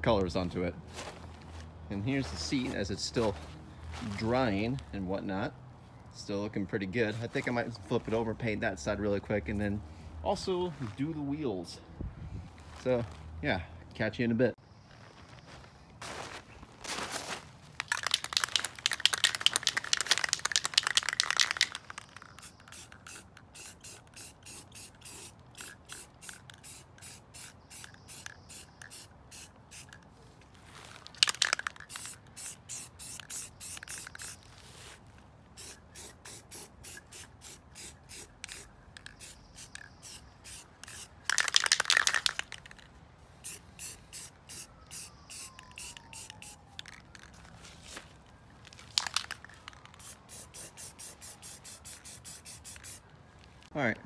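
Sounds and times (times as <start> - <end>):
spray paint hissing: 17.8 - 30.1, 31.0 - 34.8, 35.6 - 47.3, 48.9 - 53.0.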